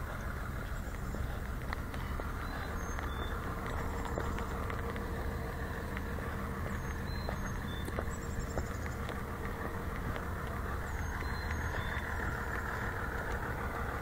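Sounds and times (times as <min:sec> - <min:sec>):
footsteps on concrete: 0:00.0 - 0:14.0
low rumble and hiss: 0:00.0 - 0:14.0.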